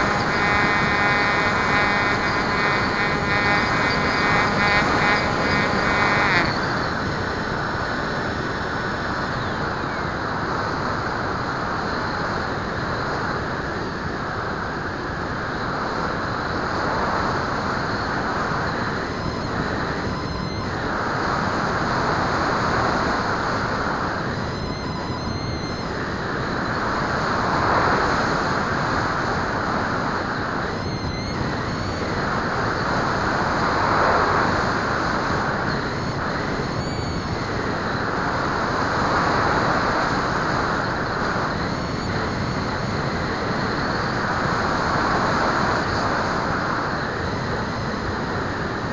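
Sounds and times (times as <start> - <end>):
airflow rushing over microphone: 0.0 - 9.3
high-pitched whine: 0.0 - 48.9.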